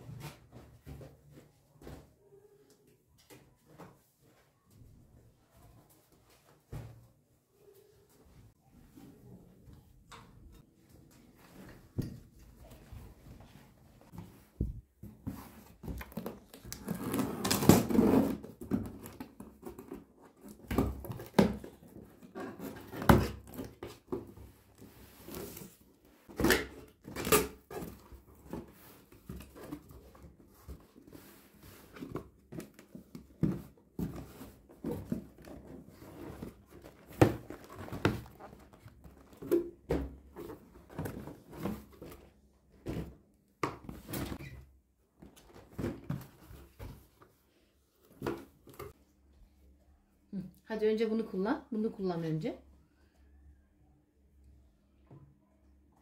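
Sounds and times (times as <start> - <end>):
cardboard rustles and thumps: 14.2 - 44.6, 45.2 - 47.3.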